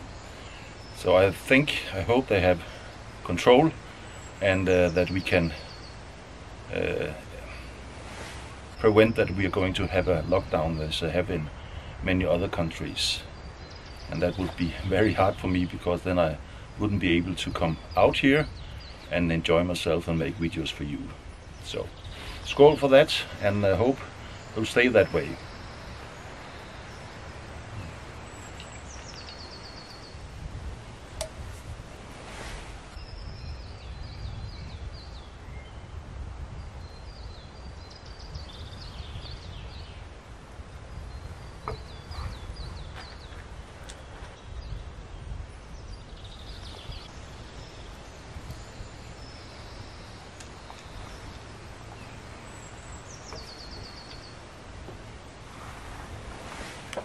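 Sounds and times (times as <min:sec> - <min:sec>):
songbirds singing: 0:00.0 - 0:57.0
faint clicks: 0:50.4 - 0:51.0.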